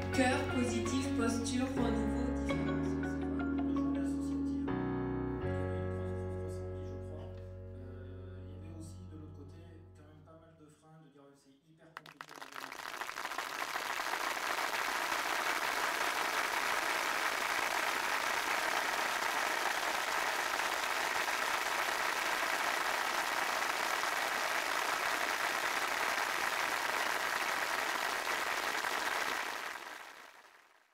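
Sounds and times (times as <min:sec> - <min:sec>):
crowd applauding: 0:12.0 - 0:30.9.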